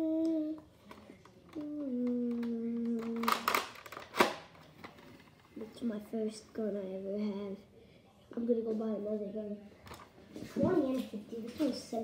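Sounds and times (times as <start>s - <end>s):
child humming: 0.0s - 0.6s, 1.6s - 3.3s.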